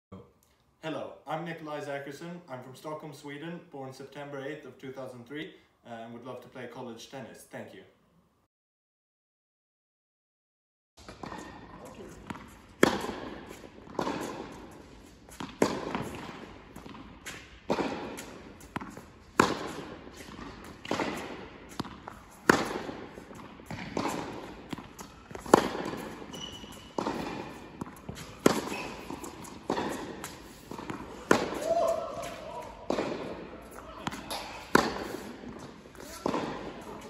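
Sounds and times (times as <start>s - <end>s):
tennis ball bouncing on hard court: 11.0s - 37.0s
tennis ball struck by racket: 11.0s - 37.0s.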